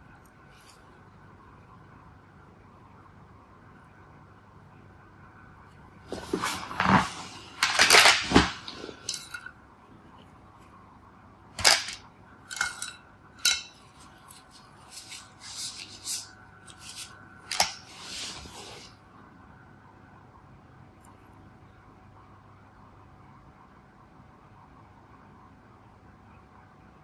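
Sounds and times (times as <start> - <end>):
art supplies clattering on desk: 6.1 - 9.5, 11.6 - 18.4.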